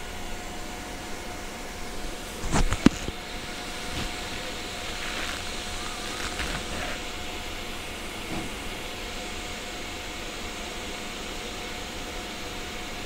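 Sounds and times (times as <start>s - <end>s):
faint constant hum: 0.0s - 13.0s
steady hiss: 0.0s - 13.0s
wires clicking: 2.5s - 7.0s.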